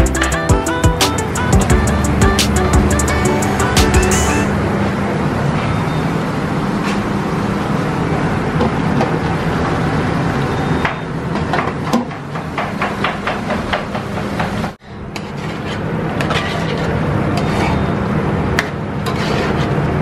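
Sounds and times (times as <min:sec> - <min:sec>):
kitchen burner roaring: 0:01.1 - 0:20.0.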